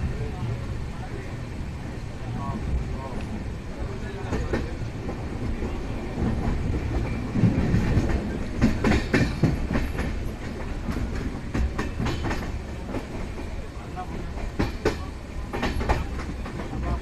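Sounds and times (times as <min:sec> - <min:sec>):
train wheels rumbling on rail: 0:00.0 - 0:17.0
wheels clacking over rail joints: 0:04.1 - 0:17.0.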